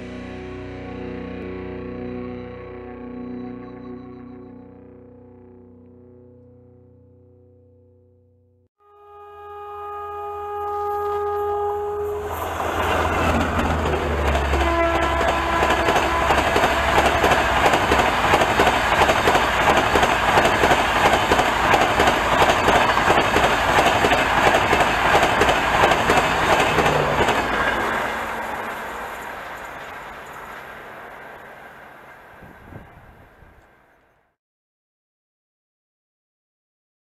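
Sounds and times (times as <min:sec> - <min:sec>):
train horn: 0:08.8 - 0:33.8
train wheels clattering on rails: 0:12.3 - 0:33.0.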